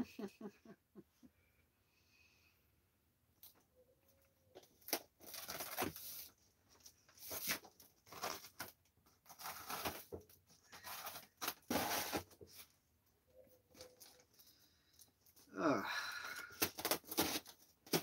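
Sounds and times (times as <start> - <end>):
packing tape tearing and scraping: 4.8 - 6.3, 7.2 - 12.7, 16.4 - 18.0.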